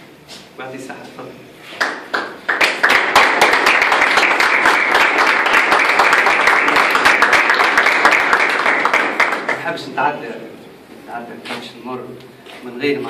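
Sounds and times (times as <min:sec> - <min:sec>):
small group applauding: 0:01.7 - 0:09.8.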